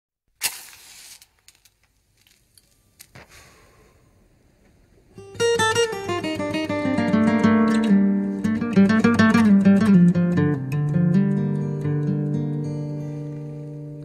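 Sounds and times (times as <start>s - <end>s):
hiss: 0.4s - 1.4s
acoustic guitar playing: 5.2s - 14.0s.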